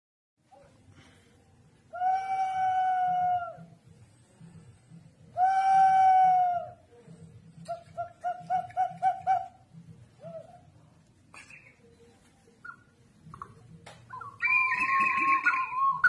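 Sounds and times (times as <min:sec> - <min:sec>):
whistling jar whistles: 0:14.1 - 0:16.0.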